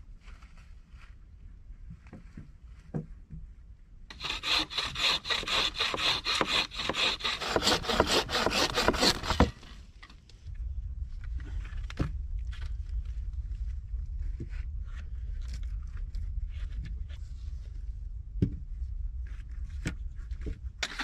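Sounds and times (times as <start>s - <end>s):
hand saw cutting wood: 4.1s - 9.7s.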